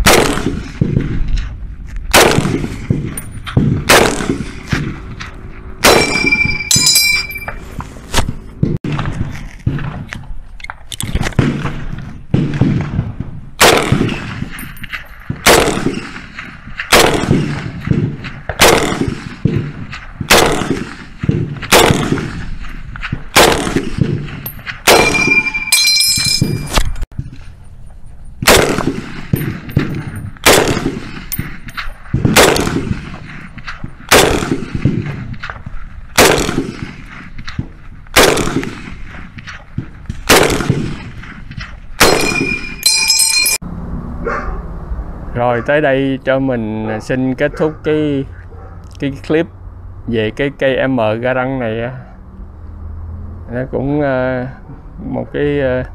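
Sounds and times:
rifle shots: 0:00.0 - 0:01.3, 0:02.1 - 0:07.5, 0:11.2 - 0:26.7, 0:28.4 - 0:43.3
ejected clip ringing ping: 0:05.9 - 0:07.6, 0:24.9 - 0:26.8, 0:42.2 - 0:43.6.

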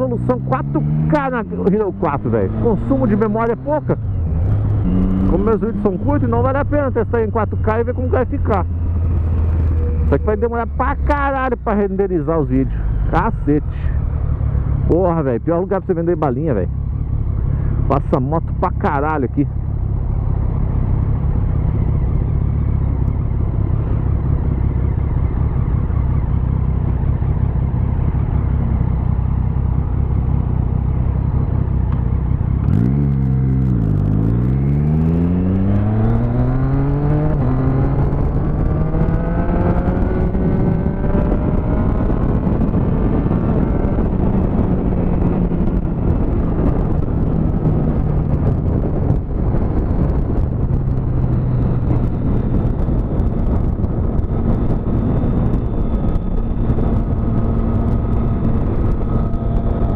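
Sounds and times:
motorcycle engine: 0:00.0 - 0:59.9
wind noise on microphone: 0:17.5 - 0:59.9.

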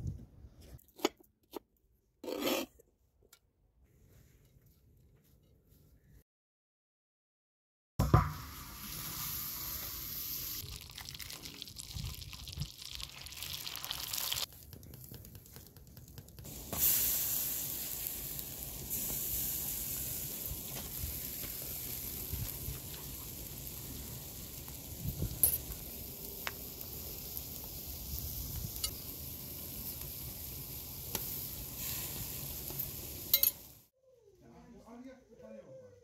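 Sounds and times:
food sizzling: 0:08.1 - 0:33.9.

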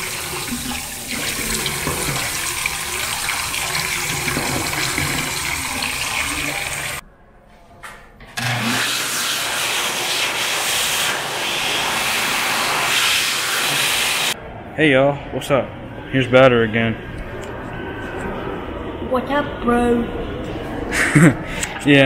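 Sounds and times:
electric hand dryer blowing: 0:00.0 - 0:07.0, 0:08.4 - 0:14.4
water running from a faucet: 0:00.0 - 0:07.0.

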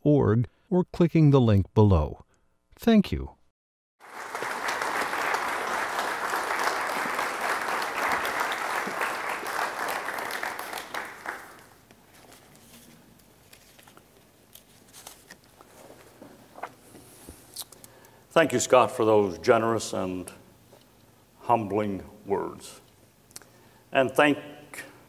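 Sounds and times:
audience applauding: 0:04.0 - 0:11.8.

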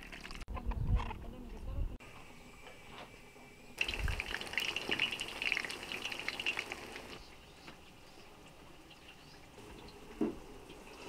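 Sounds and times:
food deep-frying in oil: 0:03.8 - 0:07.3.

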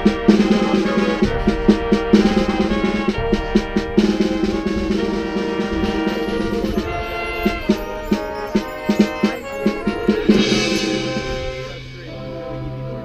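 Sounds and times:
drum strokes: 0:00.0 - 0:12.8
marching band playing: 0:00.0 - 0:13.0
cymbal crash: 0:01.2 - 0:12.6.

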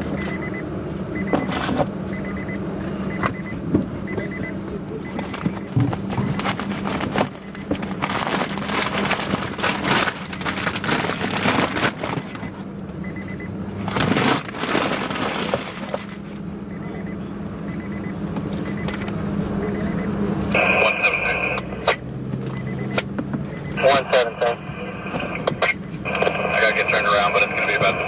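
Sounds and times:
car engine idling: 0:00.0 - 0:28.0
faint beeping tone: 0:00.1 - 0:06.4, 0:12.2 - 0:13.5, 0:16.7 - 0:21.6, 0:22.6 - 0:24.1
crackling and rustling handling noise: 0:05.0 - 0:12.6, 0:13.8 - 0:16.4.

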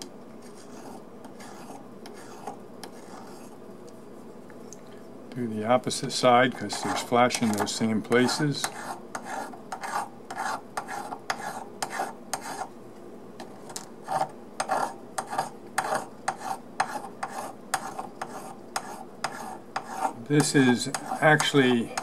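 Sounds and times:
file rasping on metal: 0:08.2 - 0:12.7, 0:14.1 - 0:22.0.

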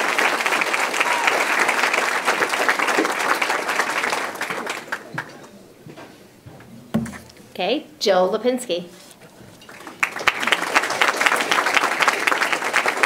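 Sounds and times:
audience applauding: 0:00.0 - 0:05.5, 0:09.6 - 0:13.0.

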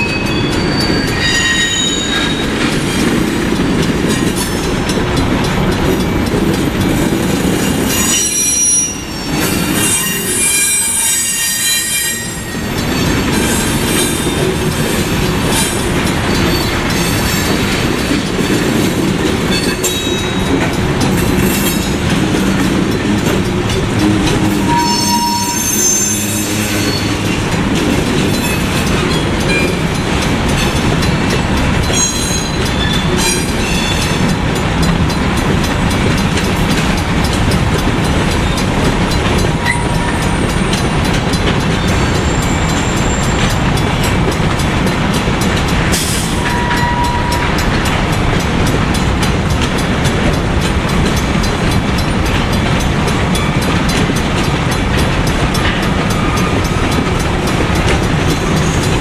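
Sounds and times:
high-pitched wheel squeals: 0:00.0 - 0:02.5, 0:07.8 - 0:14.4, 0:24.4 - 0:27.4
train wheels rumbling and clattering: 0:00.0 - 0:59.0.

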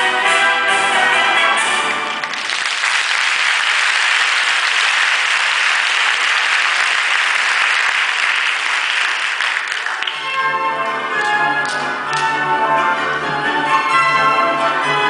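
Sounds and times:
audience applauding: 0:02.0 - 0:10.3.

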